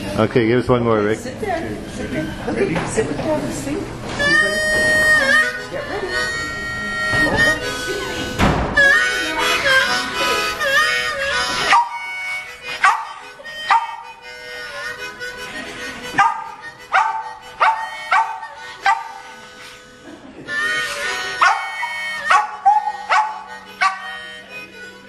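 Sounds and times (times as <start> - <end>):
harmonica playing blues: 0.8 - 2.7, 4.1 - 25.0
dog howling: 16.2 - 19.1, 21.4 - 24.1.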